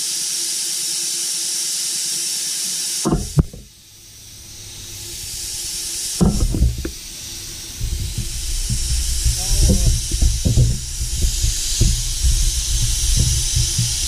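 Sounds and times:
compressed air hissing: 0.9s - 14.0s
knocks: 3.1s - 14.0s
low thumps: 3.1s - 14.0s
rushing noise: 3.4s - 14.0s.

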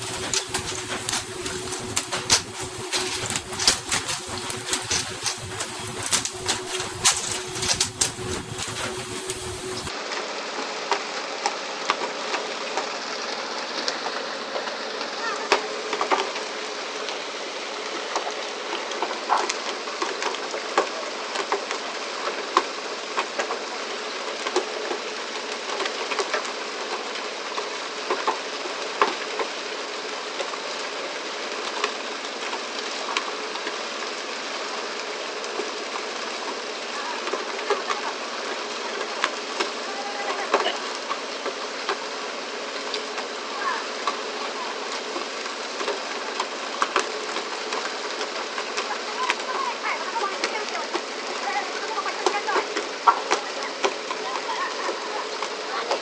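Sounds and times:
boat engine and water rushing: 0.0s - 9.9s.

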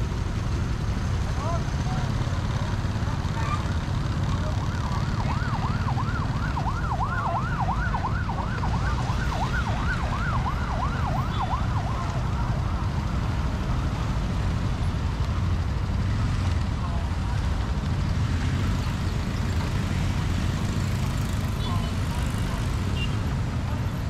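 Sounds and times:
road and engine rumble: 0.0s - 24.0s
warbling emergency siren: 4.2s - 13.8s.

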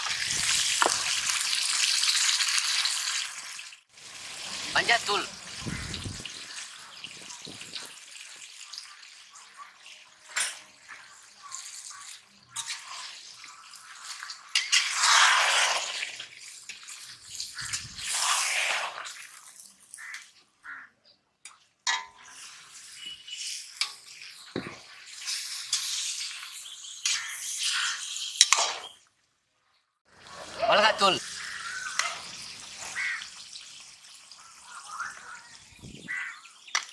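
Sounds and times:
meat sizzling in a pan: 0.0s - 20.1s, 22.2s - 28.4s, 30.3s - 36.9s
metal ladle scraping a pan: 12.4s - 19.2s, 21.9s - 28.9s.

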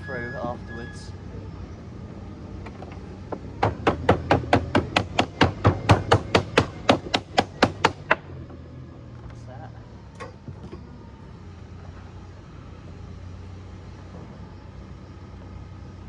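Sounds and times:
tool beating lead sheet: 3.6s - 8.2s.

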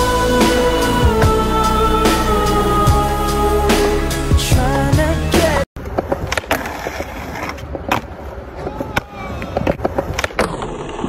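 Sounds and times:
song with singing: 0.0s - 5.7s
skateboard clacking on ground: 5.8s - 11.0s
skateboard wheels rolling on concrete: 5.8s - 11.0s.

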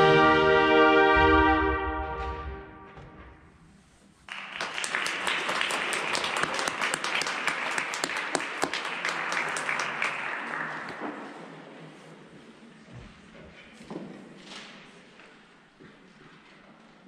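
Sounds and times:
audience applause: 4.3s - 11.3s.

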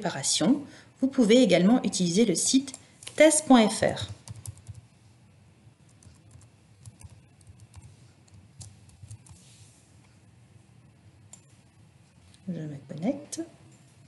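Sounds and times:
soft keyboard typing: 4.0s - 4.9s, 5.8s - 10.2s, 11.3s - 11.6s.

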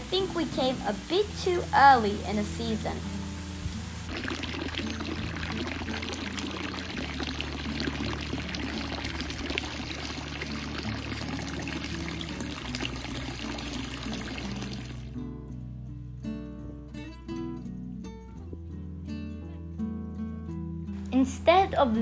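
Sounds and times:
running water splashing: 0.0s - 15.1s.

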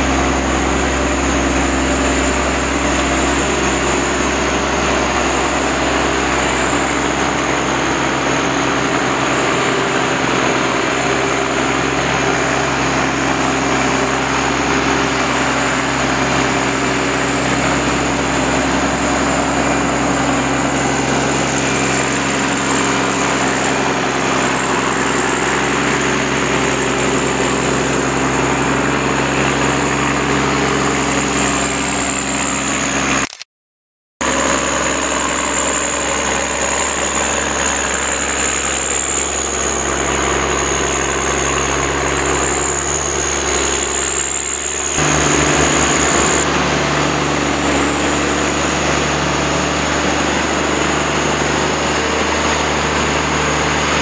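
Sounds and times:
diesel engine running: 0.0s - 33.4s, 34.2s - 54.0s
high-pitched whine: 34.3s - 54.0s.

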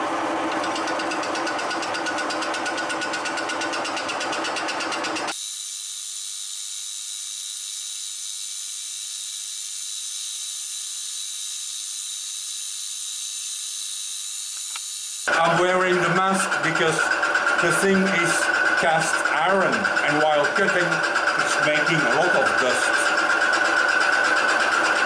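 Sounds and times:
milling machine cutting metal: 0.6s - 15.3s
high-pitched whine and hiss: 5.3s - 15.3s.

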